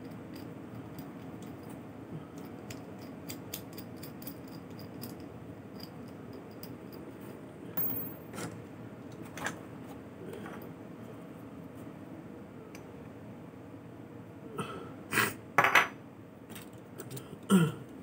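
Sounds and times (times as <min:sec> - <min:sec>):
low room hum: 0:00.0 - 0:18.0
small metal parts clicking: 0:02.4 - 0:06.8.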